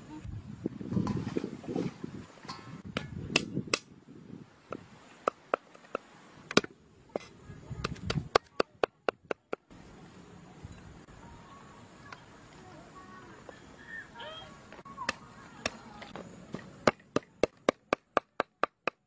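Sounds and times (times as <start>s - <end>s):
cleaver chopping on wooden board: 16.8s - 19.0s.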